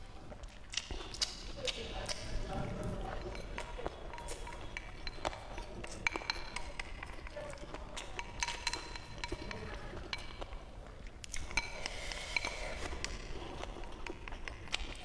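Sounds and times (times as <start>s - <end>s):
eating sounds: 0.0s - 15.0s
chopsticks tapping ceramic bowl: 3.2s - 10.5s.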